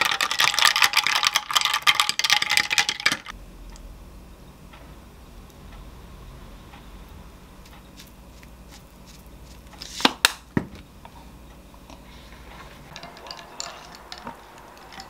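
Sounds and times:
chopsticks and dishes clattering: 0:12.9 - 0:15.0.

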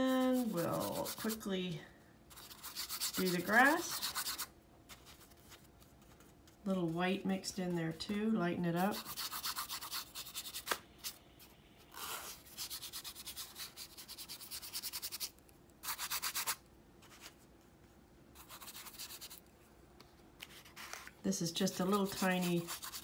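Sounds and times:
paintbrush scrubbing on canvas: 0:00.1 - 0:01.5, 0:02.3 - 0:05.1, 0:21.7 - 0:23.0.

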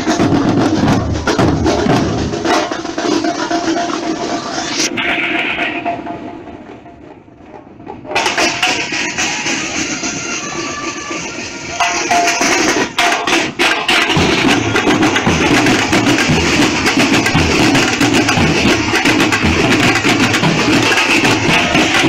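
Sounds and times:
snare drums playing: 0:11.8 - 0:22.0.

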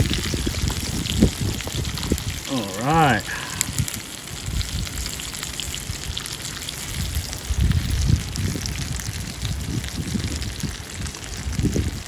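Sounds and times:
low rumbles: 0:00.0 - 0:12.0
oil sizzling and popping in a pan: 0:00.0 - 0:12.0.

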